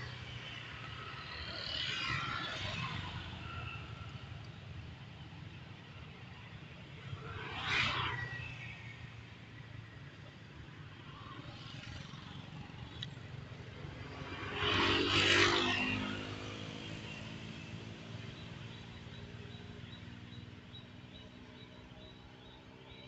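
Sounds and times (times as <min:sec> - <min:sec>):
vehicle engine passing by: 0:13.9 - 0:23.0.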